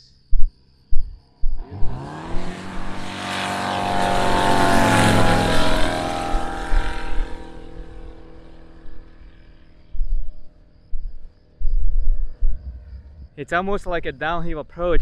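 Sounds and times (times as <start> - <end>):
light plane flying past: 1.6 - 13.4.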